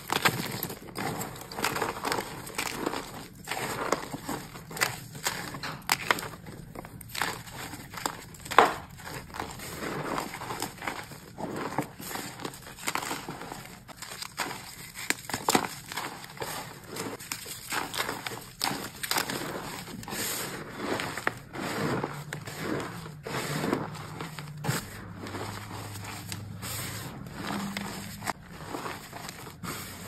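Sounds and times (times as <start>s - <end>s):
chalk crunching by hand: 0.0s - 30.0s.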